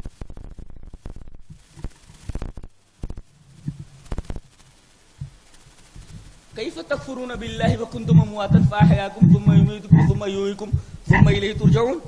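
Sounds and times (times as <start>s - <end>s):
man swallowing: 7.4s - 12.0s.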